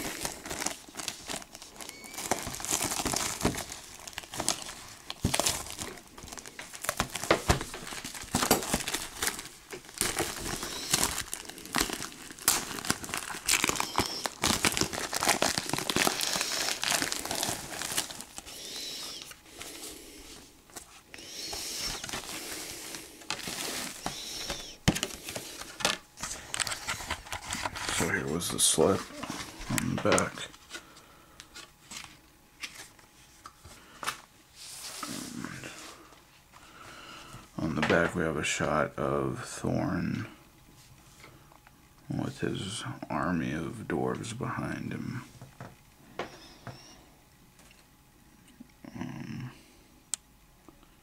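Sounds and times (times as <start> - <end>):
plastic wrapping crinkling: 0.0 - 30.8.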